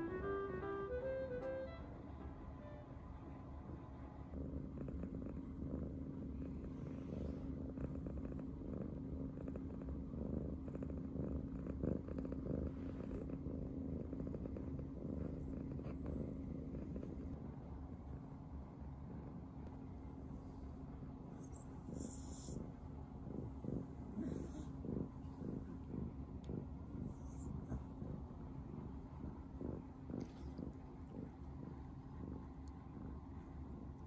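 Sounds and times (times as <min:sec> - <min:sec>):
cat purring: 0:00.0 - 0:34.0.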